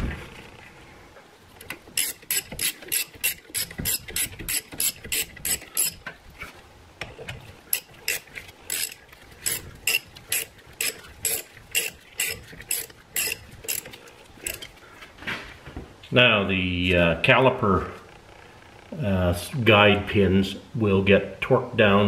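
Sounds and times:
hand ratchet clicking: 1.6s - 6.1s, 7.7s - 14.7s.

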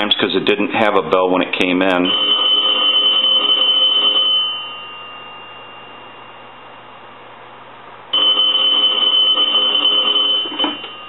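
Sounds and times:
payphone bell ringing: 1.9s - 6.7s, 8.1s - 11.0s.

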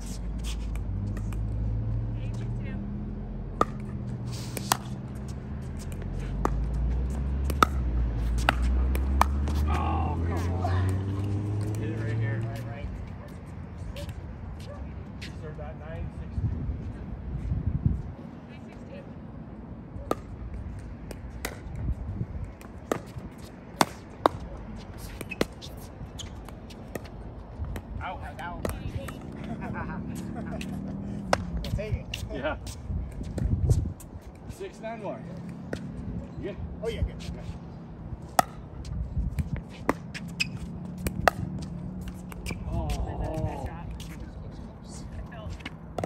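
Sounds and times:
plastic ball hitting paddles: 7.4s - 9.7s.

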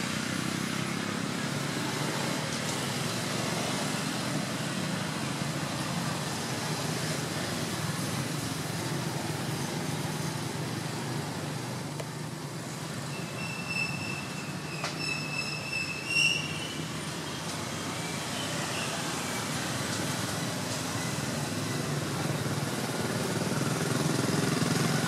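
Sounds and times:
low rumble of traffic: 0.0s - 25.0s
high thin squeal: 13.1s - 16.9s.

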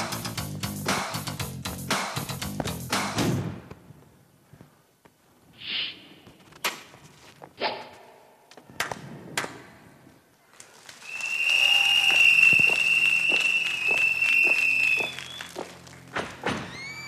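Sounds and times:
backing music: 0.0s - 3.5s, 12.2s - 17.0s.

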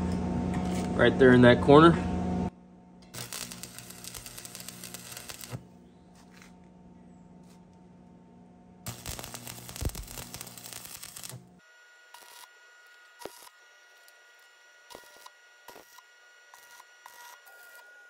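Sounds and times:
low electrical hum: 0.0s - 17.1s
welding arc crackling: 3.1s - 5.7s, 8.9s - 17.9s.

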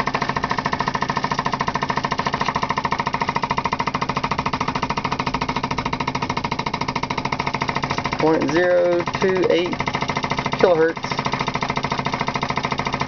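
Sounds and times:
piston engine rapid clatter: 0.0s - 13.0s.

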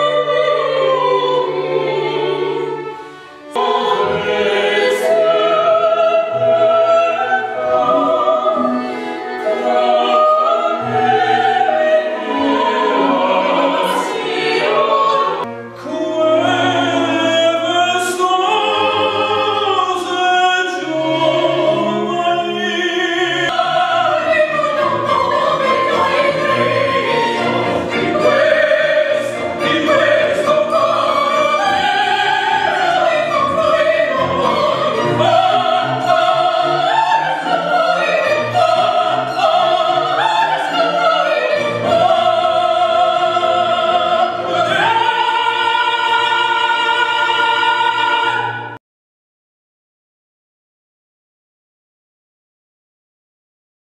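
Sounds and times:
string quartet: 0.0s - 48.8s
male opera singer: 15.8s - 24.4s.

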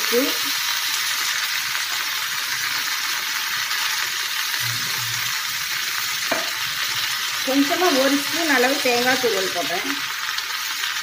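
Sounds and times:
plantain frying in oil: 0.0s - 11.0s.

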